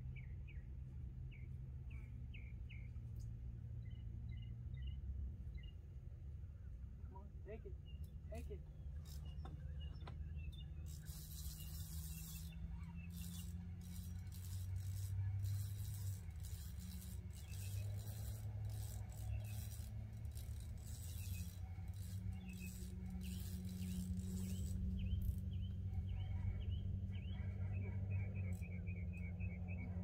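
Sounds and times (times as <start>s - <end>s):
fishing reel clicking: 10.6s - 25.5s.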